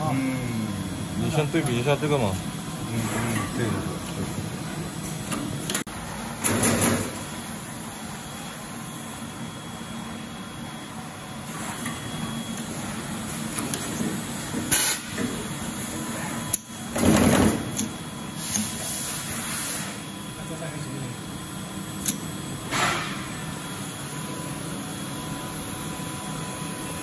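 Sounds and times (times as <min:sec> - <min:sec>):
wire-cutting machine running: 0:00.0 - 0:18.9.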